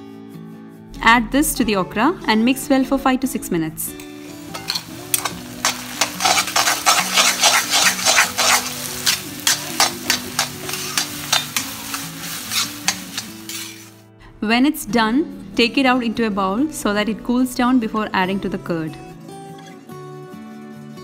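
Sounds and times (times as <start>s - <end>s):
food sizzling: 3.9s - 14.1s
spatula scraping a pan: 4.4s - 14.0s.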